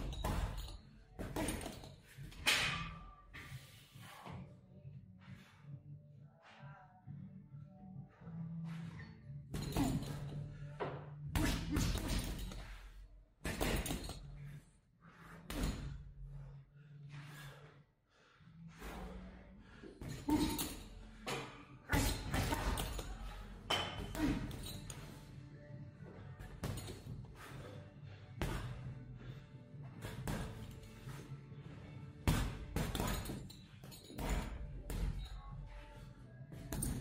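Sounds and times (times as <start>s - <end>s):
boxing gloves punching heavy bag: 0.0s - 2.4s, 9.5s - 10.4s, 11.3s - 14.4s, 15.4s - 16.2s, 20.0s - 25.0s, 26.4s - 27.5s, 28.4s - 29.0s, 30.0s - 31.1s, 32.2s - 35.5s, 36.5s - 37.0s.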